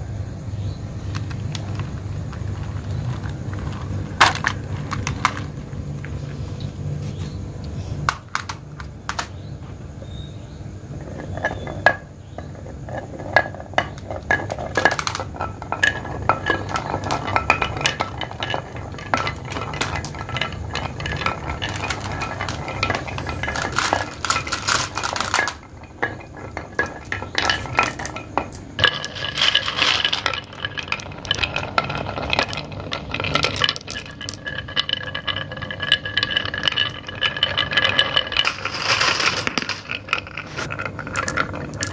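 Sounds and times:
marbles rolling on wooden tracks: 0.6s - 6.9s, 8.0s - 41.9s
glass marbles clinking together: 11.0s - 41.9s.

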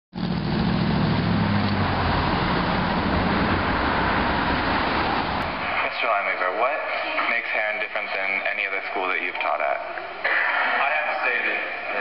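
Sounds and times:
low engine hum: 0.1s - 5.6s
cars passing road noise: 0.1s - 7.3s.

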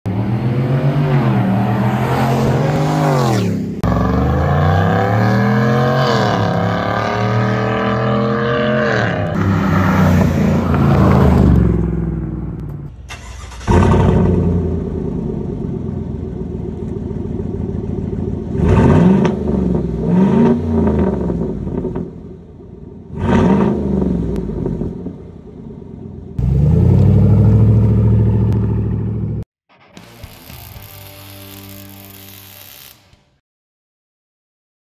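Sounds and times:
engine revving in blips: 0.1s - 15.3s, 18.3s - 22.2s, 23.1s - 25.2s, 26.3s - 29.4s
truck accelerating past: 0.1s - 15.4s, 26.4s - 29.5s
engine cold start: 12.9s - 14.6s.

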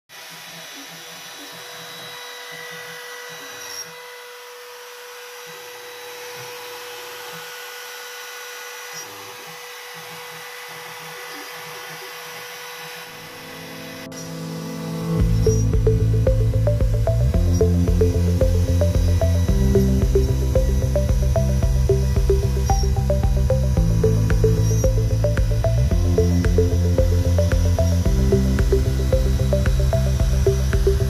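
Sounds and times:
router whining: 0.1s - 31.0s
music: 13.2s - 31.0s.

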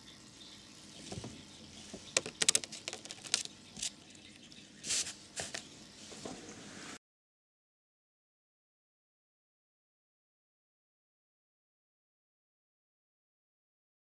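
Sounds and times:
sharp clicks and taps: 2.2s - 3.5s.

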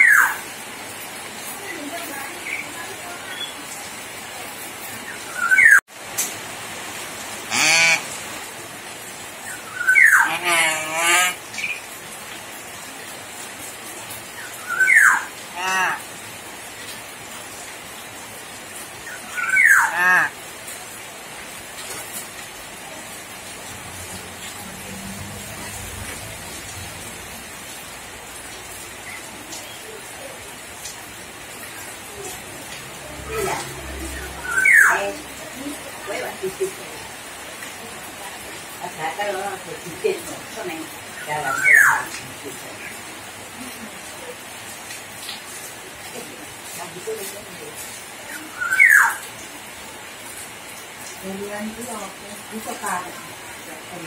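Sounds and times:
myna calling: 7.5s - 8.2s, 9.4s - 11.8s, 14.6s - 16.2s, 19.0s - 20.4s, 31.6s - 36.6s, 40.8s - 42.2s.

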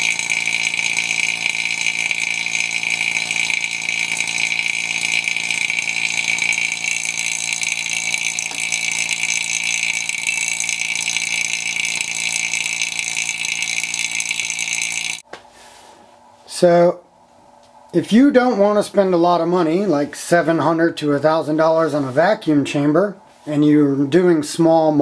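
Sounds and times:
vacuum pump whining hum: 0.0s - 15.4s.

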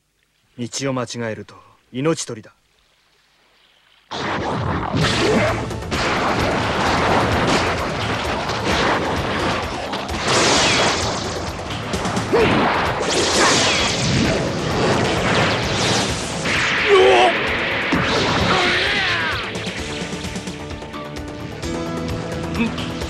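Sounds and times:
smashing impacts and rumbling: 4.1s - 20.2s
loud crash: 4.1s - 20.4s.

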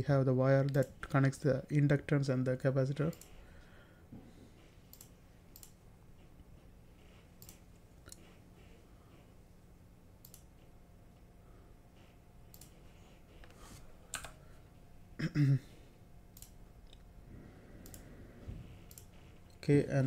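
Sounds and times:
low hum: 0.0s - 20.0s
computer mouse clicks: 3.0s - 3.4s, 4.9s - 5.8s, 7.0s - 8.4s, 10.2s - 10.7s, 12.5s - 14.4s, 16.3s - 17.1s, 17.8s - 18.1s, 18.7s - 19.6s.

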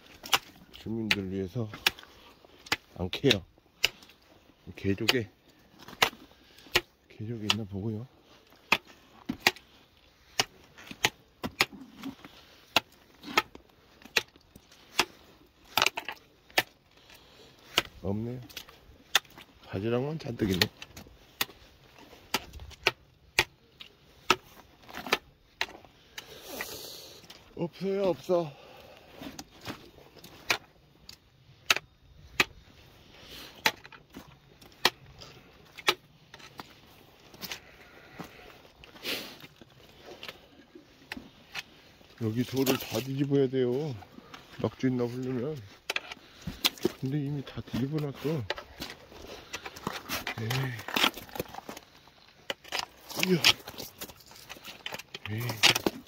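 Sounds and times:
digging tool scraping stones: 0.0s - 56.0s
footsteps crunching on wet stones: 34.1s - 56.0s.

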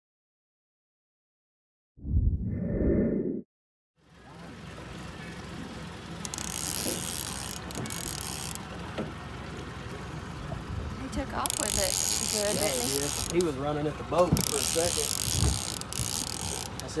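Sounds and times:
wind on the microphone: 2.0s - 3.2s
short loud low sound: 2.0s - 3.4s.

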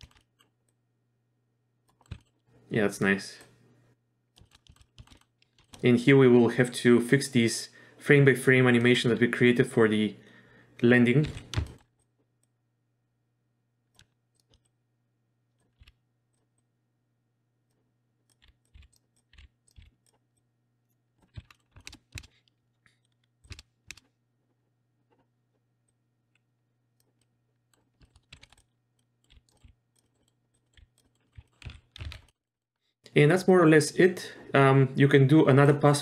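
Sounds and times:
keyboard keystrokes: 11.2s - 11.9s, 21.2s - 24.1s, 27.8s - 32.4s.

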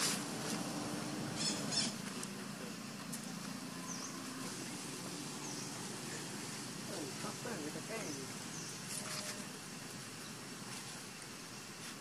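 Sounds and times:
high bird chirps: 1.4s - 2.0s.

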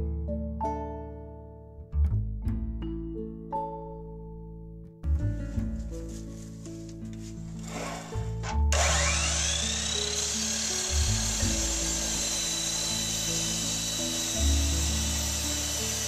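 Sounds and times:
background music: 0.0s - 16.0s
miter saw whine: 7.6s - 16.0s.

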